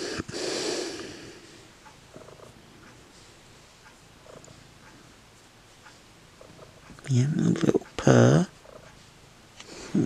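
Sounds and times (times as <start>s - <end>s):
cat purring: 0.0s - 3.0s, 3.8s - 5.1s, 6.2s - 9.1s.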